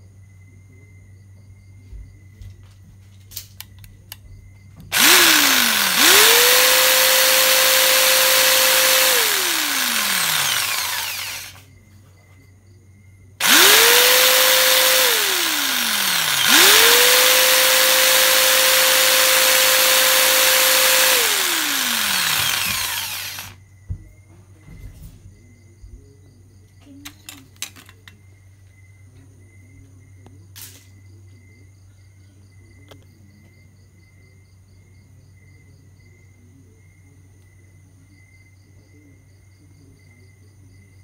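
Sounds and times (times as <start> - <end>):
jigsaw motor whining: 4.9 - 11.6, 13.4 - 23.6.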